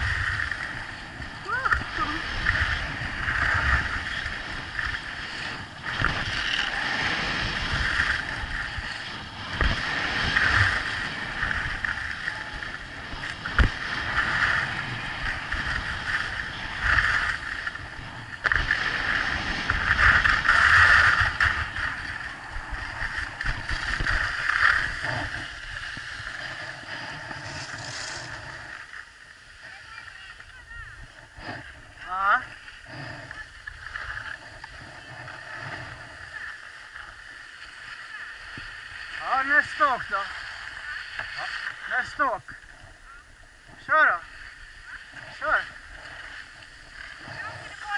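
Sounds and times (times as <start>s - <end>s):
wind rushing over microphone: 0.0s - 28.8s
snow scraping under skis: 22.8s - 28.7s.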